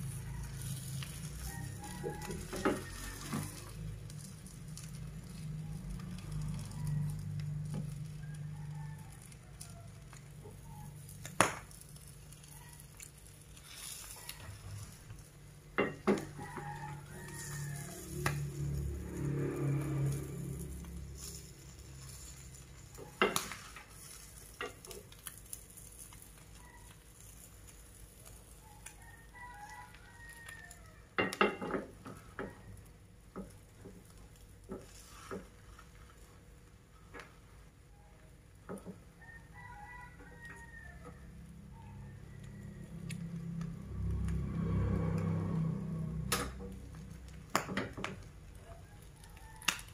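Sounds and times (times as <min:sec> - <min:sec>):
rooster crowing: 0:00.0 - 0:04.3, 0:05.4 - 0:11.2, 0:13.8 - 0:15.2, 0:15.8 - 0:23.8, 0:26.5 - 0:27.0, 0:28.4 - 0:32.8, 0:37.9 - 0:49.9
faint sizzle: 0:00.0 - 0:49.9.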